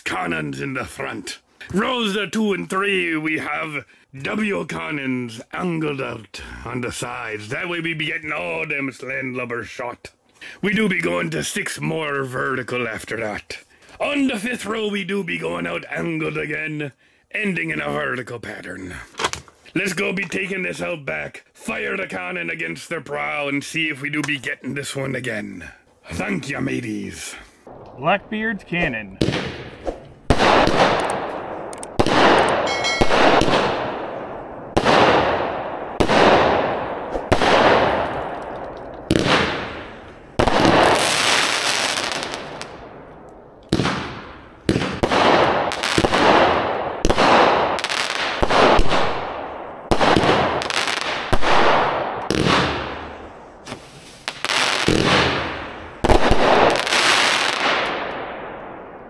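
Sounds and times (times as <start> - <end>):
firework bangs with hiss and crackle: 29.2 - 31.0, 32.0 - 34.0, 34.7 - 42.8, 43.7 - 49.3, 49.9 - 58.1.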